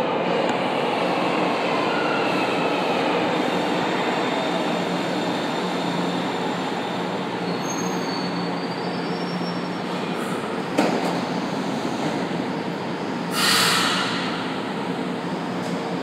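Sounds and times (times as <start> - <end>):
train wheels and motors rumbling: 2.4 - 16.0
high brake squeal: 4.4 - 10.5, 11.4 - 15.7.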